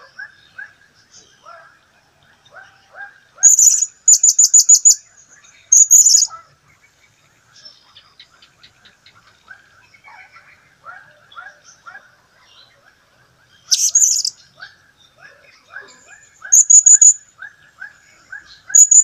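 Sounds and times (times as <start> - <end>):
bird ticking notes: 3.4 - 5.0, 5.7 - 6.3, 16.5 - 17.2, 18.8 - 19.0
parrot shrill calls: 3.4 - 5.0, 5.7 - 6.3, 13.7 - 14.3, 16.4 - 17.2, 18.7 - 19.0
parrot soft chirps: 3.4 - 5.0, 5.7 - 6.4, 13.7 - 14.4, 16.4 - 17.2, 18.4 - 19.0.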